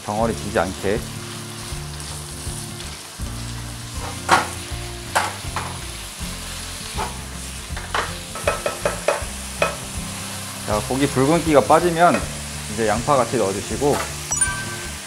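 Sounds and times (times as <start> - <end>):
ground pork sizzling in a wok: 0.0 - 15.0
spatula scraping and knocking pan: 7.8 - 9.8.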